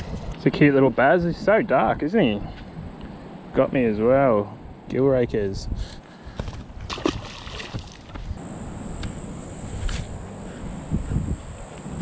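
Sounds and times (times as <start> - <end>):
fish splashing into water: 6.8 - 8.3
insects trilling: 7.0 - 12.0.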